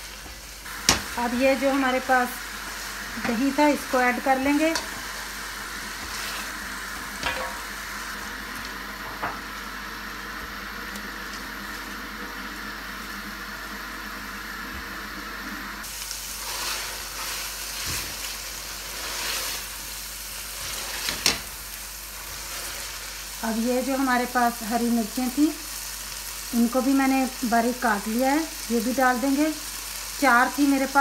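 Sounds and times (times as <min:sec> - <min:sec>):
meat sizzling in oil: 0:00.0 - 0:14.6, 0:15.7 - 0:31.0.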